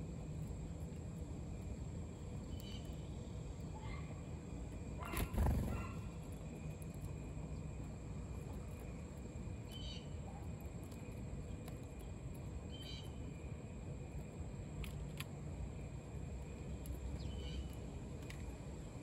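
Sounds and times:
sparrows chirping: 2.2s - 6.4s, 9.6s - 10.3s, 12.6s - 13.4s, 16.6s - 18.3s.

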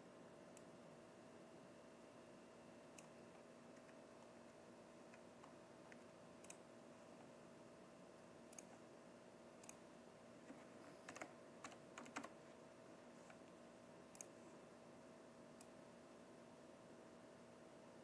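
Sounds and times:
faint steady hum: 0.0s - 18.0s
keyboard keystrokes and clicks: 2.9s - 6.6s, 10.4s - 12.4s, 13.2s - 14.4s.

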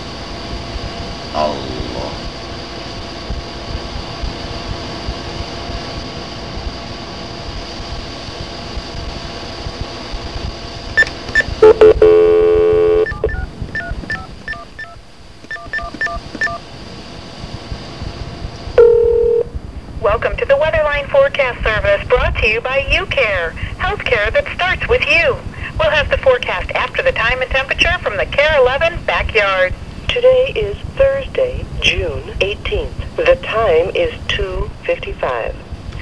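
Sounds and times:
telephone line hissing and humming: 0.0s - 19.6s
touch-tone keypad beeps: 11.0s - 16.6s, 18.8s - 19.5s
loud steady telephone tone: 11.0s - 16.7s, 18.8s - 19.6s.

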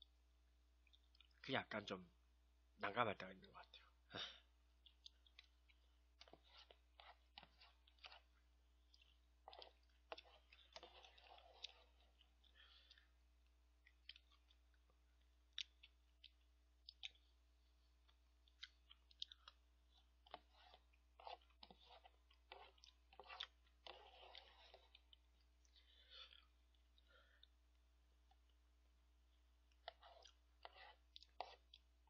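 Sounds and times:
quiet chewing: 0.8s - 1.4s, 3.6s - 32.0s.

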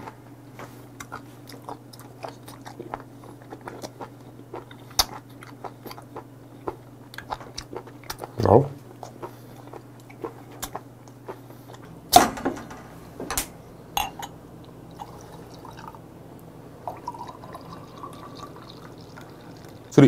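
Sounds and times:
beer pouring into glass: 14.9s - 16.0s, 16.8s - 20.0s.

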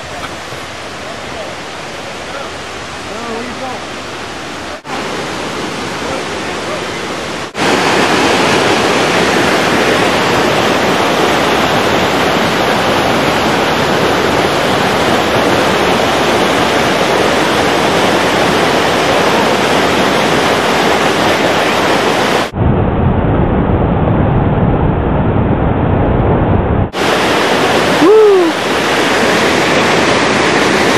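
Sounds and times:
river rushing over rocks: 0.0s - 22.6s, 26.9s - 30.9s.

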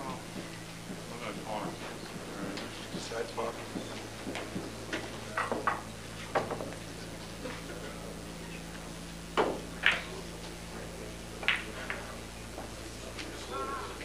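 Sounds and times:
pool balls clicking: 9.3s - 10.5s, 11.4s - 13.3s.

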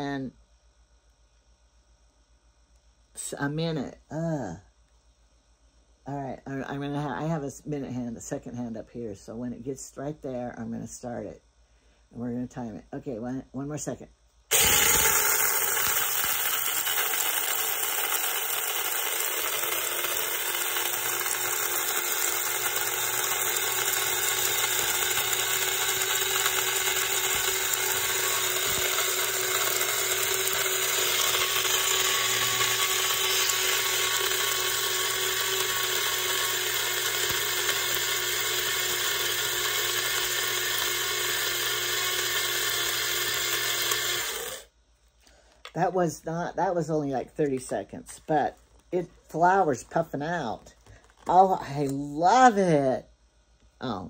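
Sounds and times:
blade grinder grinding grain: 14.5s - 44.7s.

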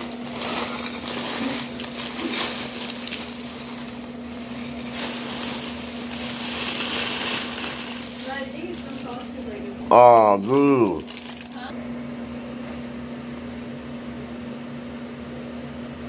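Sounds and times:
cereal flakes rattling: 0.0s - 9.7s, 10.9s - 11.7s
plastic bag crinkling: 0.0s - 9.8s, 10.5s - 11.7s.

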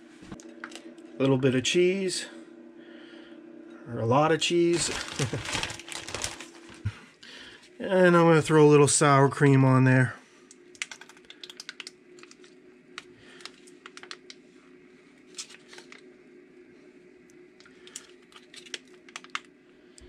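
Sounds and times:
low steady hum: 0.0s - 20.0s
plastic pouch crinkling: 4.7s - 6.9s, 11.2s - 12.5s.

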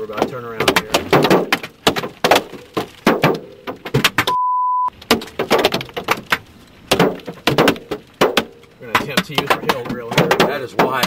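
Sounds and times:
hailstones pounding a vehicle: 0.0s - 4.3s, 4.9s - 11.0s
beep tone: 4.3s - 4.9s.

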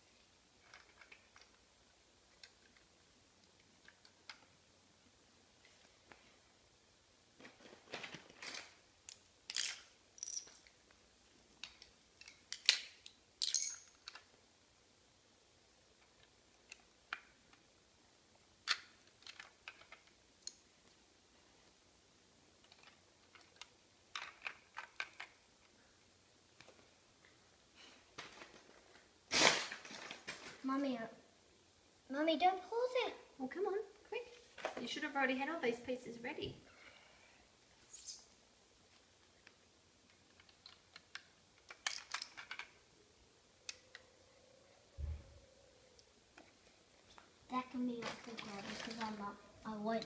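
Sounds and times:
plastic bricks clicking on tile floor: 8.4s - 10.8s, 11.6s - 14.3s, 18.6s - 20.6s, 22.6s - 25.5s, 39.4s - 42.8s.

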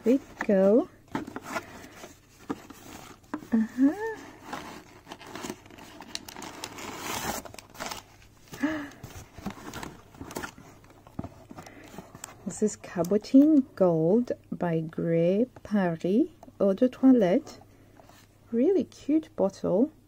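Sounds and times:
plastic wrapping crinkling: 0.0s - 12.4s
person humming: 3.5s - 4.3s.

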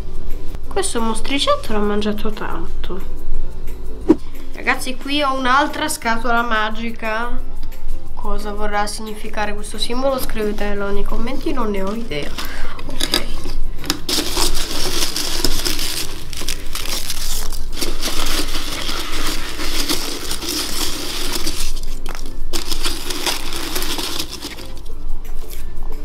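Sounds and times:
foam cubes rustling and crunching: 12.2s - 24.9s
foam rubbing against plastic: 14.1s - 24.8s.

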